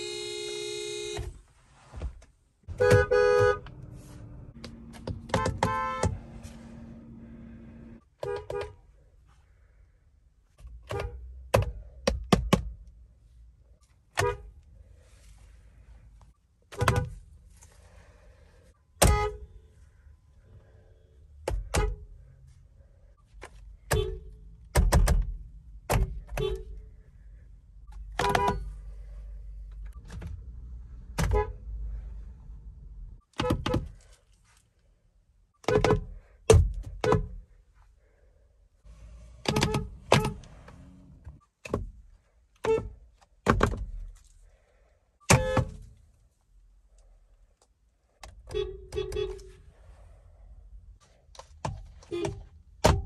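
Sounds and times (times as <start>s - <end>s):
car horn honks: 0.0s - 1.4s, 2.7s - 8.8s, 19.0s - 19.7s, 28.2s - 28.7s, 31.2s - 31.6s, 48.5s - 49.6s.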